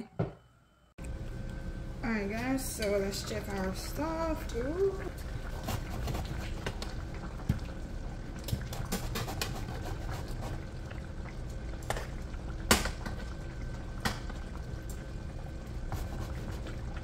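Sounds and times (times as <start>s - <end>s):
stew bubbling at a boil: 1.0s - 17.0s.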